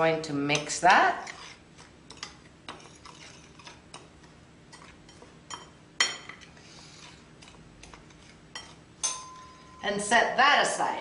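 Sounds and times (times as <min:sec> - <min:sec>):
metal utensil scraping bowl: 0:00.5 - 0:04.0
ringing clink on ceramic bowl: 0:09.0 - 0:09.9.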